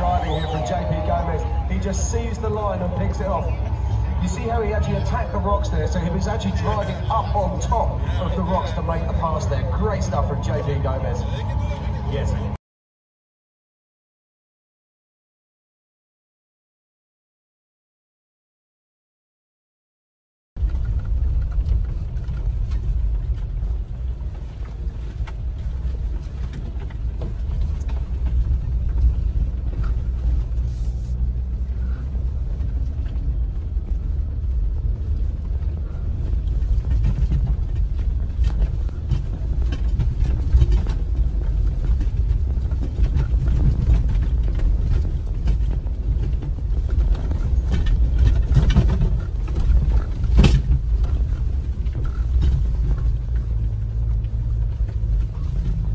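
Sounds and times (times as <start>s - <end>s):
engine and tyres rumbling: 0.0s - 12.6s, 20.6s - 55.9s
knocks and rattles: 32.3s - 55.9s.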